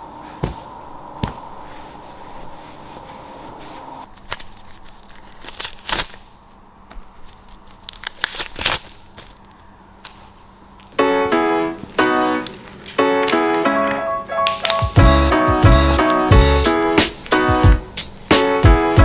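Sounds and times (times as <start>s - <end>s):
steady hum: 0.0s - 5.2s.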